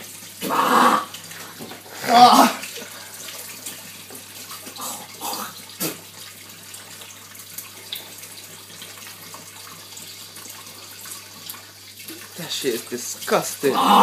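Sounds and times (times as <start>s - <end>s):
tap running into a sink: 1.4s - 1.9s, 3.6s - 4.8s.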